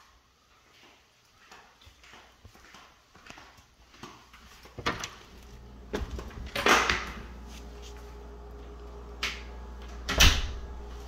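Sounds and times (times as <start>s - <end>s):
steady low hum: 5.2s - 11.0s.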